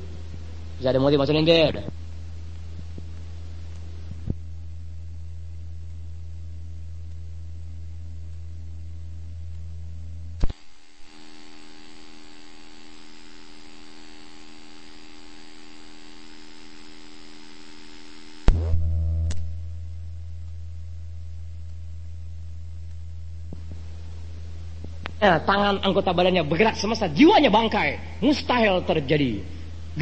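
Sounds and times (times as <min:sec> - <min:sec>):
electrical mains hum: 0:00.0 - 0:30.0.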